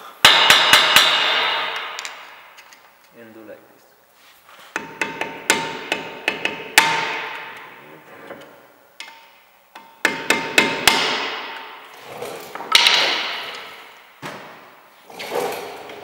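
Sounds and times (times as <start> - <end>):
hammer striking a screwdriver: 0.2 - 2.2, 4.7 - 7.4.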